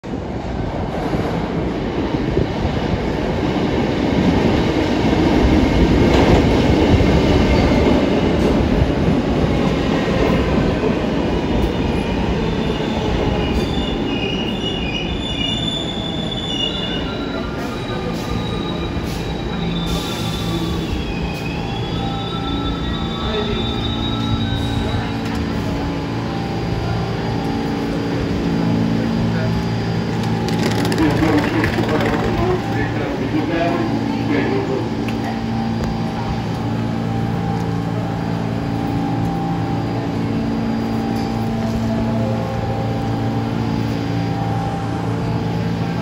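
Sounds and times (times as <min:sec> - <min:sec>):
subway train rumbling: 0:00.0 - 0:46.0
high squealing of train brakes: 0:11.8 - 0:25.8.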